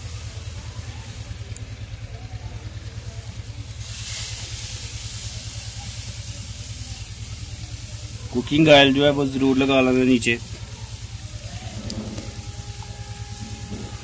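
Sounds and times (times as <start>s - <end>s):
fish sizzling on a grill: 0.0s - 14.0s
low rumble: 10.4s - 14.0s.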